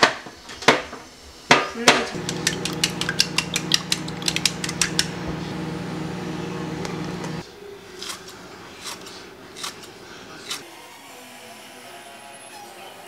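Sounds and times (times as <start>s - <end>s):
chopsticks beating eggs in bowl: 2.2s - 7.4s
steady low hum: 2.2s - 7.4s.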